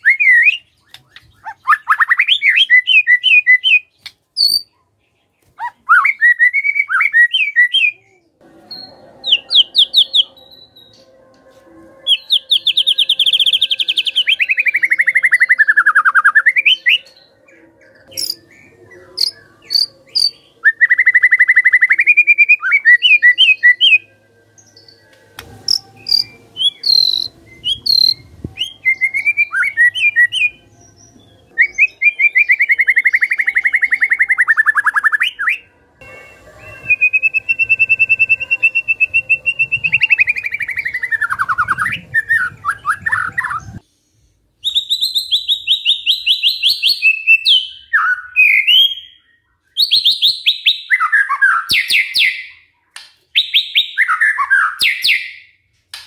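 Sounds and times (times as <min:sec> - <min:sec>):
bird high whistled notes: 0:08.6 - 0:43.8.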